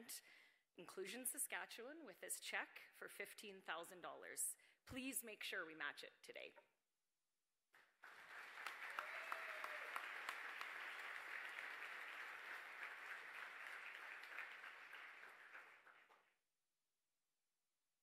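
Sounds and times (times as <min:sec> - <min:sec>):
audience applause: 0:07.8 - 0:16.3.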